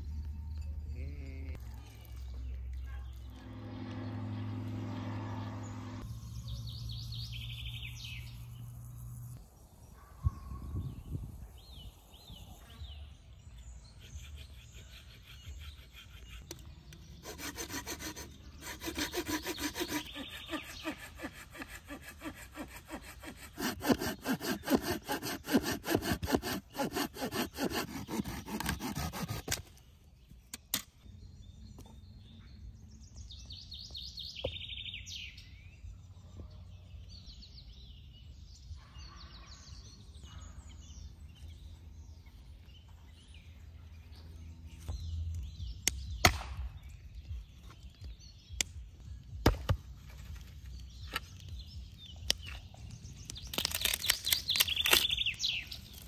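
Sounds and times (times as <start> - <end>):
hand saw cutting a log: 17.1 - 29.8.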